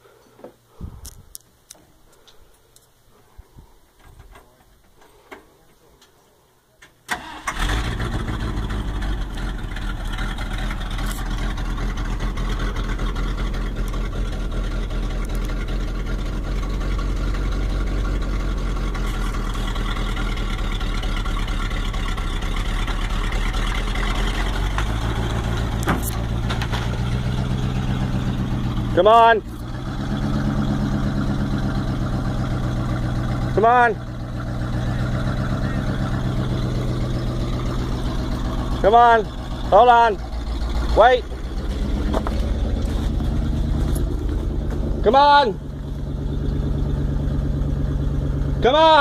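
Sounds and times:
truck engine starting and idling: 0:06.9 - 0:49.0.

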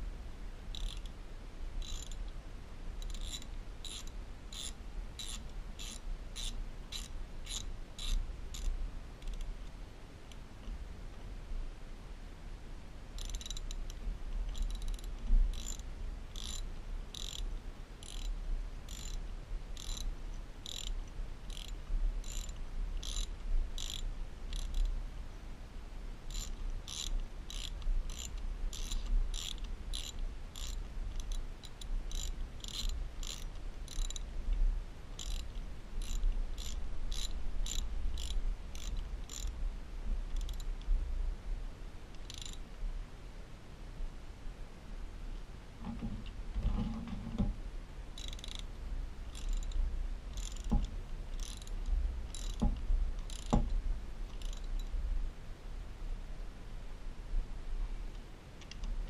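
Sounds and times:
ratchet wrench clicking: 0:00.7 - 0:01.1, 0:01.8 - 0:02.2, 0:03.0 - 0:09.4, 0:13.2 - 0:13.8, 0:14.5 - 0:15.8, 0:16.4 - 0:17.4, 0:18.0 - 0:18.3, 0:18.9 - 0:19.2, 0:19.8 - 0:24.9, 0:26.3 - 0:34.2, 0:35.2 - 0:39.5, 0:40.4 - 0:40.7, 0:42.2 - 0:42.6, 0:48.2 - 0:48.6, 0:49.3 - 0:50.7, 0:51.4 - 0:52.6, 0:53.2 - 0:53.6, 0:54.3 - 0:54.8.

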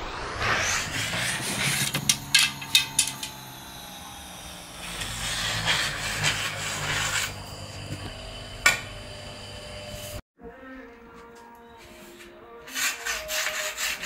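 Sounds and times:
rubbing and scraping hose: 0:00.4 - 0:03.4, 0:04.8 - 0:08.0, 0:11.8 - 0:14.0.

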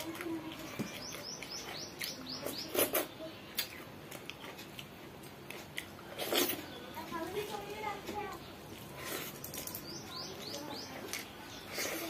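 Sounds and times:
bird chirping: 0:00.4 - 0:03.7, 0:09.4 - 0:12.0.

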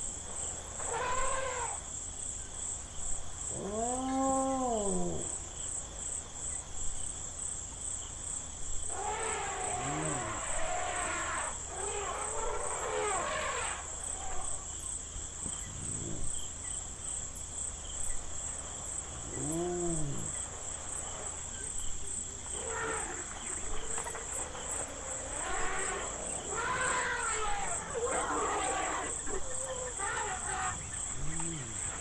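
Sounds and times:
crickets chirping: 0:00.0 - 0:32.0
rising and falling insect calls: 0:00.5 - 0:01.8, 0:03.5 - 0:05.4, 0:08.9 - 0:14.8, 0:19.2 - 0:32.0.

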